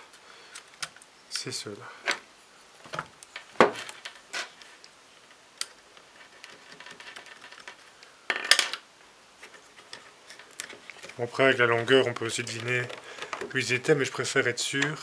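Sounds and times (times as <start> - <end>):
rustling: 0.0 - 15.0
plastic parts clicking: 5.6 - 8.8, 9.4 - 13.6.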